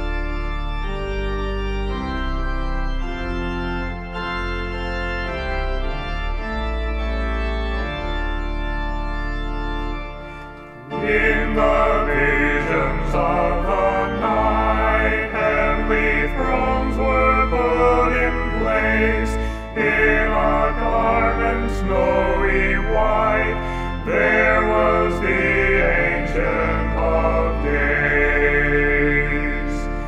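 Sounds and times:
organ playing sustained chords: 0:00.0 - 0:30.0
choir singing: 0:10.7 - 0:30.0.

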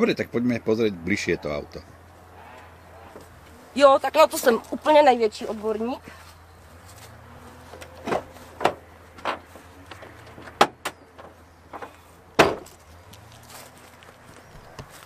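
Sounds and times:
car latch clunks: 0:07.8 - 0:12.8.

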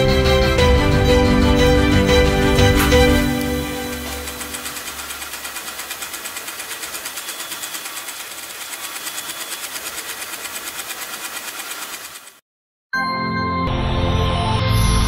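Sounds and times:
sewing machine stitching: 0:02.7 - 0:12.4.

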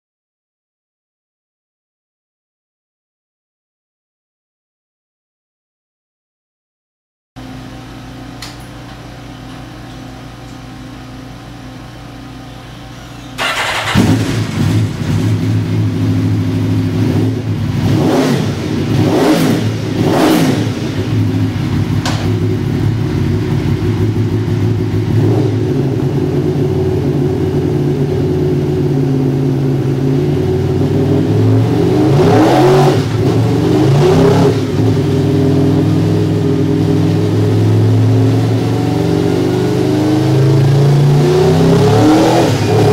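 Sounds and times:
motorcycle engine revving: 0:13.1 - 0:42.9
engine idling: 0:19.7 - 0:31.8.

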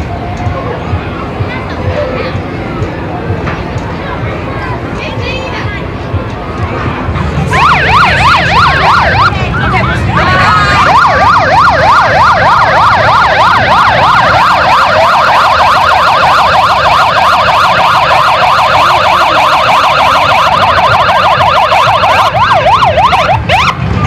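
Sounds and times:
motorcycle sirens yelping: 0:07.1 - 0:24.0.

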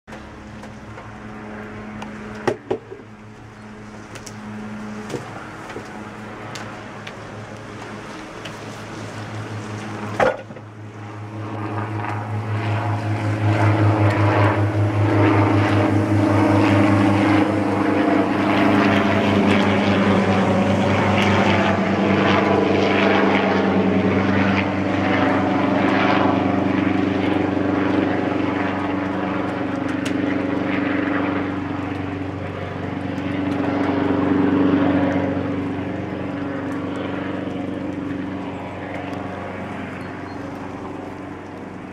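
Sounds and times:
helicopter engine drone: 0:00.1 - 0:41.9
helicopter rotor chop: 0:00.1 - 0:41.9.

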